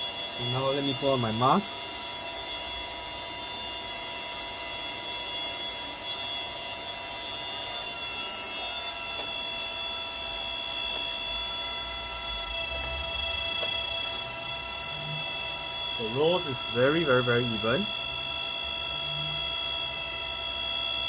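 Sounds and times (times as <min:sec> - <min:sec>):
coffee roaster fan whirring: 0:00.0 - 0:21.0.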